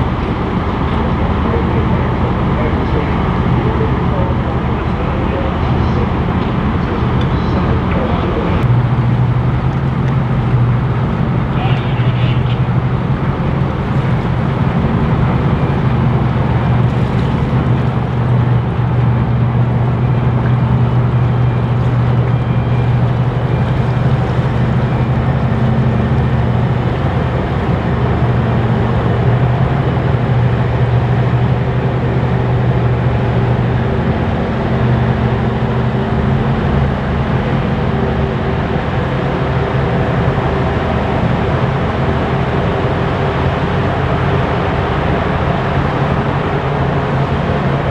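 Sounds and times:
ship engine drone: 0.0s - 47.9s.

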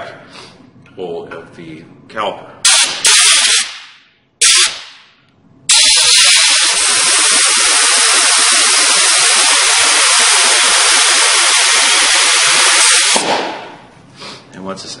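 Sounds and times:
compressed air hissing: 5.7s - 14.5s.

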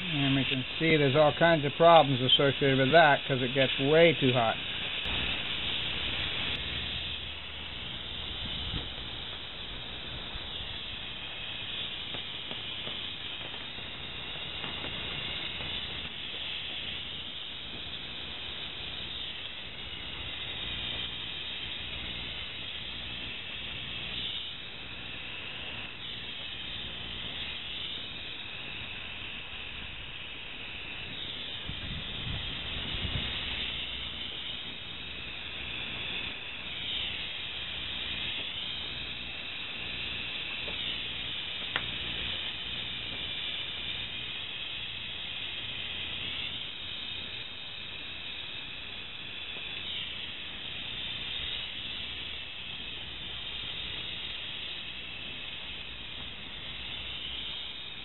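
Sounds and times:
gas torch flame hissing: 0.0s - 58.0s
sharp tick: 40.0s - 42.3s.

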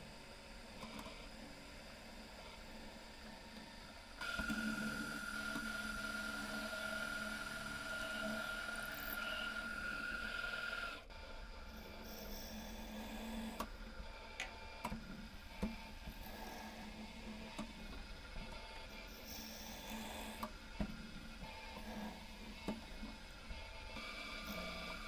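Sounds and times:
drill press drilling steel: 4.2s - 11.1s, 11.8s - 13.6s, 18.8s - 20.4s.

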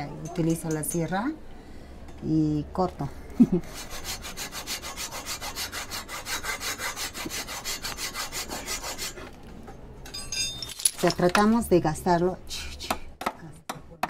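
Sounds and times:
hacksaw cutting stone: 3.8s - 9.2s.

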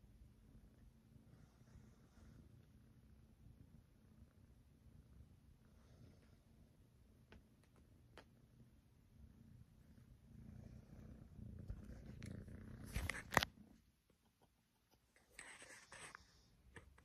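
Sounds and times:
kitten purring: 0.0s - 14.5s
brief rustle: 12.8s - 13.6s.

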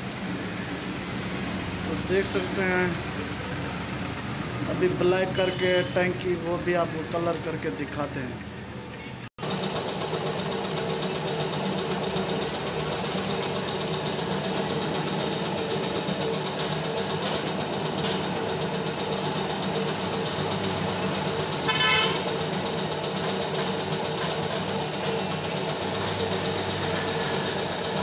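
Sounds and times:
paint spray gun hissing: 9.4s - 28.0s
steady motor hum: 9.4s - 28.0s
short horn toot: 21.7s - 22.2s.

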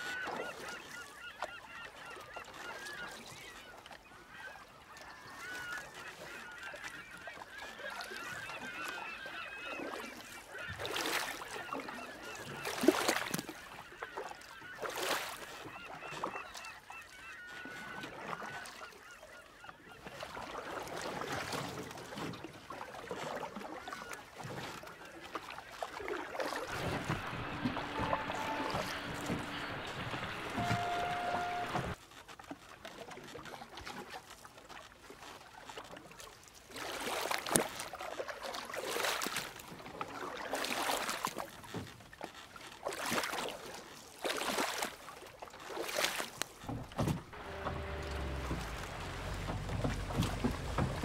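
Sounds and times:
water lapping: 0.0s - 51.0s
sharp splashes: 26.0s - 32.0s, 45.7s - 51.0s
birds honking: 26.7s - 32.0s, 46.6s - 51.0s.

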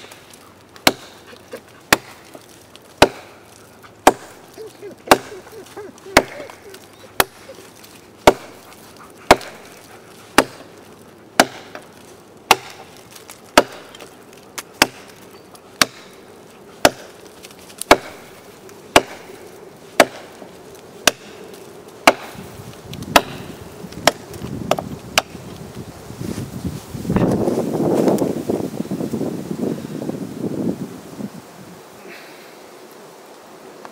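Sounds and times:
knife chopping into log: 0.8s - 1.3s, 1.9s - 2.4s, 3.0s - 3.4s, 4.0s - 4.4s, 5.1s - 7.5s, 8.2s - 9.7s, 10.4s - 10.7s, 11.4s - 11.9s, 12.5s - 15.2s, 15.8s - 16.1s, 16.8s - 17.2s, 17.8s - 18.3s, 18.9s - 19.3s, 20.0s - 20.4s, 21.0s - 21.4s, 22.0s - 22.4s, 23.1s - 25.4s.

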